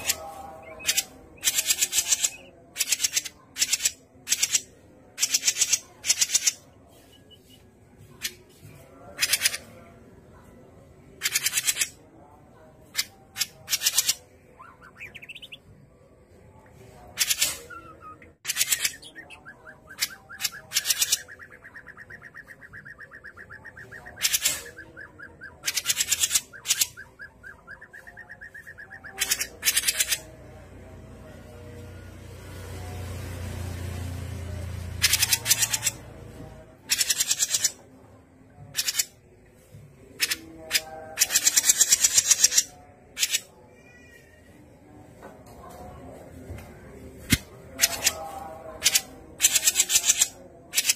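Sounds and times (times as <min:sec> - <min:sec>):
bird rattling trill: 0:35.0 - 0:36.0.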